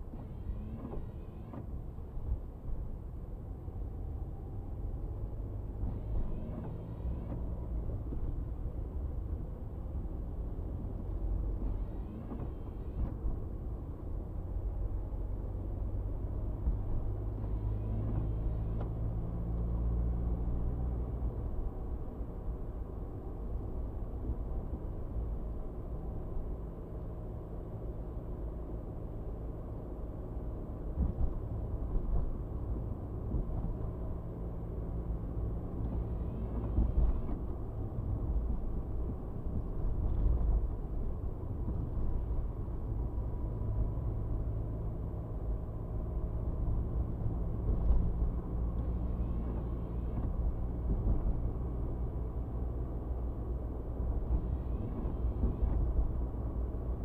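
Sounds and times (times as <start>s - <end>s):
windshield wiper sweeping: 0.0s - 2.4s, 5.8s - 8.5s, 11.5s - 13.4s, 16.6s - 20.0s, 30.8s - 43.2s, 54.0s - 57.0s
car road and engine noise: 0.0s - 57.0s.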